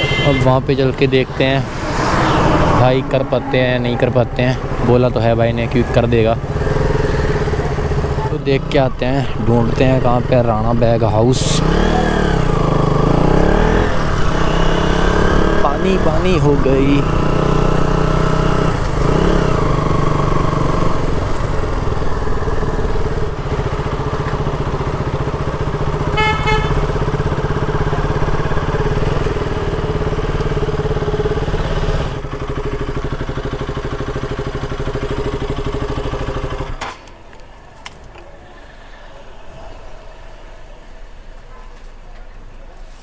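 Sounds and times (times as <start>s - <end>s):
motorcycle horn beep: 0.0s - 0.6s, 26.0s - 27.0s
motorcycle engine running: 0.0s - 37.4s.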